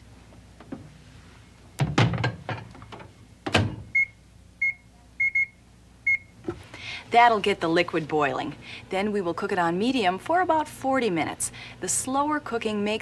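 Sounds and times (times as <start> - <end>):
dish knocking in microwave: 1.8 - 2.7.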